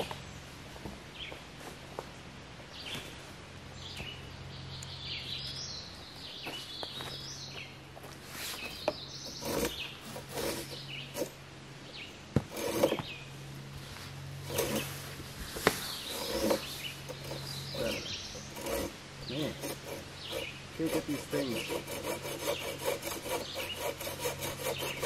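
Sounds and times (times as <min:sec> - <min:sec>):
bird singing: 0:02.7 - 0:07.9, 0:08.5 - 0:13.4, 0:15.8 - 0:25.0
hammock fabric rustling: 0:08.1 - 0:11.3, 0:13.7 - 0:17.6.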